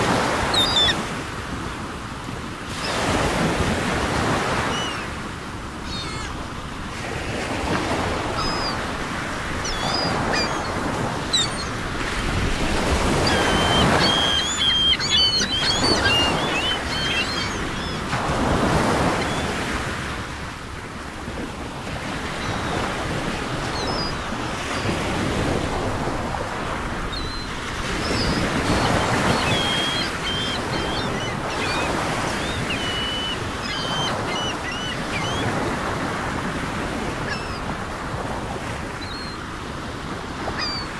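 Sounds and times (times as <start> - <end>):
ocean waves washing: 0.0 - 40.9
high bird calls: 0.5 - 1.0, 5.8 - 6.4, 8.3 - 8.9, 9.6 - 11.8, 12.8 - 18.1, 27.1 - 35.6, 40.5 - 40.9.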